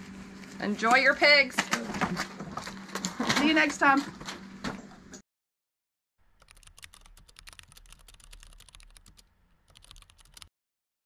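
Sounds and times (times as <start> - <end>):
rapid sharp clicks: 6.4 - 10.5.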